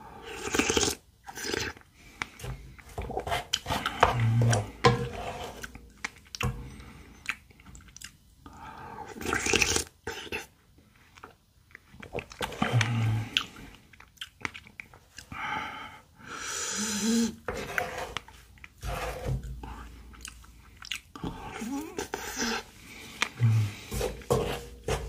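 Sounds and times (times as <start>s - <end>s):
wet chewing and crunching: 0.3s - 4.8s, 5.5s - 8.3s, 9.1s - 15.4s, 19.4s - 25.0s
wooden spoon scraping bowl: 2.5s - 5.8s, 17.4s - 19.9s, 23.6s - 25.0s
slurping from spoon: 16.7s - 20.4s.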